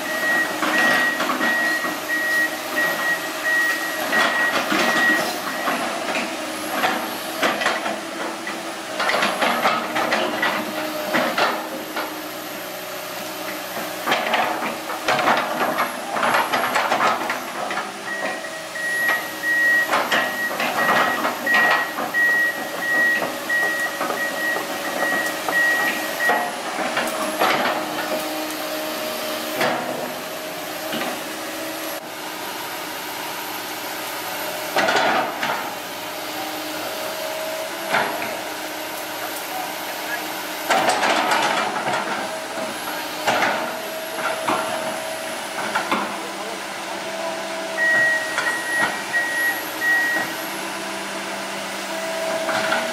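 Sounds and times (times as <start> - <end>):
excavator running: 0.0 - 52.9
pulsed travel alarm beeping: 18.1 - 26.4, 47.8 - 50.3.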